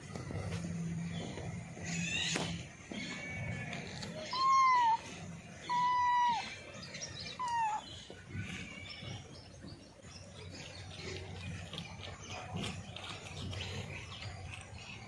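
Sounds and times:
kitten meowing: 4.3 - 5.0, 5.7 - 6.5, 7.4 - 7.9.

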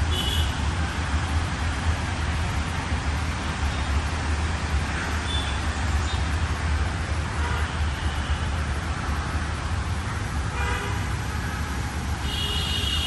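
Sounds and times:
distant road traffic rumble: 0.0 - 13.0
vehicle horn: 10.5 - 13.0.

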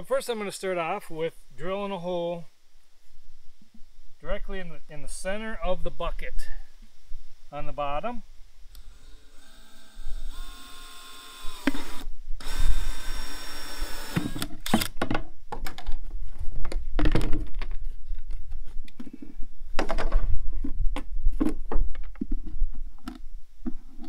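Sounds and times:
drill hole saw whining through plastic: 8.8 - 14.9.

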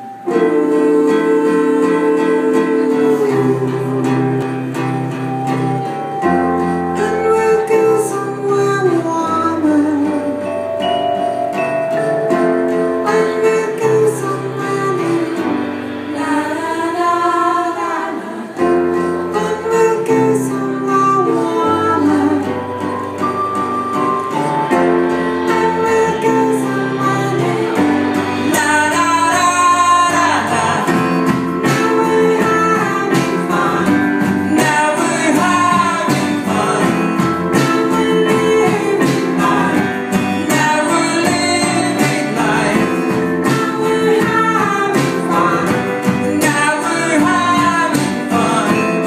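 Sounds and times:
person singing: 0.0 - 49.0
strummed acoustic guitar: 0.0 - 49.0
sustained chords: 10.1 - 17.1
electric bass: 18.6 - 49.0.

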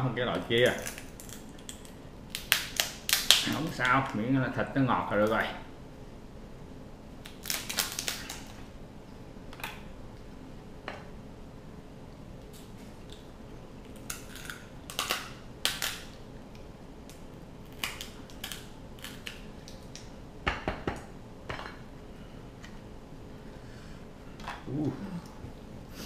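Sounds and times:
crab shell cracking: 0.6 - 4.0, 7.2 - 8.6, 12.4 - 20.1.

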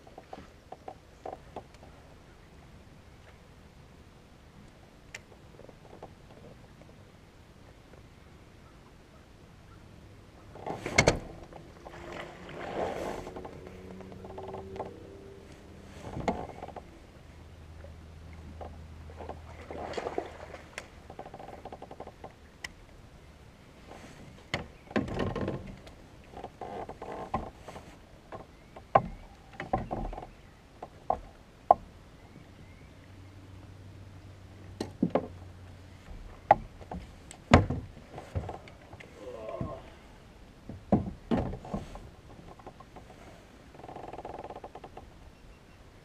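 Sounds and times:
water splashing: 11.2 - 16.0, 17.8 - 21.1.

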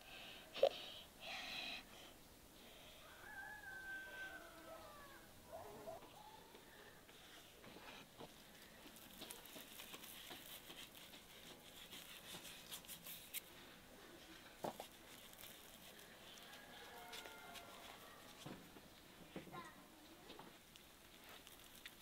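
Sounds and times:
seasoning grains pattering on meat: 8.6 - 13.3, 20.7 - 22.0.

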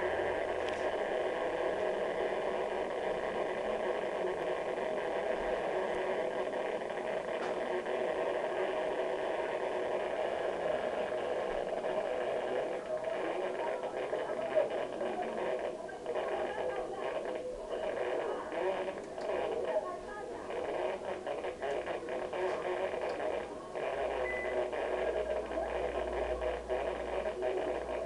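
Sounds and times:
steady rushing noise: 0.0 - 16.4.

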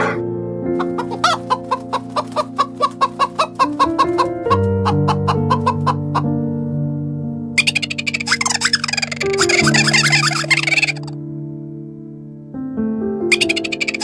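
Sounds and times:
slow piano music: 0.0 - 14.0
chickens clucking: 0.8 - 6.3, 7.6 - 11.1, 13.3 - 14.0.

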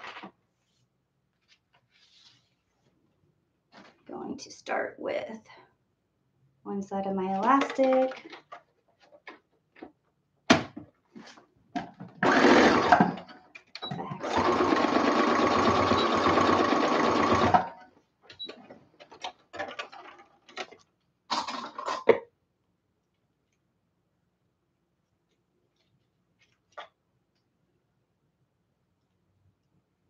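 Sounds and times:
sewing machine stitching: 12.2 - 17.8.

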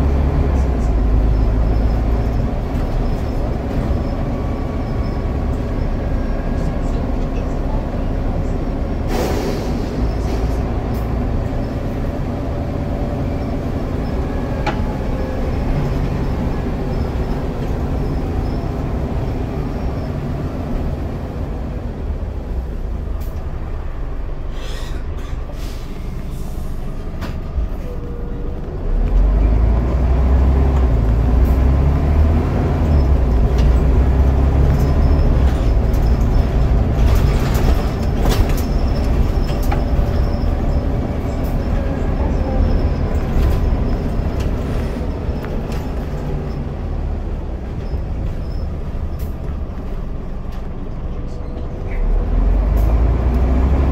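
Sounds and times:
bus diesel engine running: 0.0 - 53.9
road and body noise: 0.0 - 53.9
short hisses: 9.1 - 10.4, 24.5 - 26.8.

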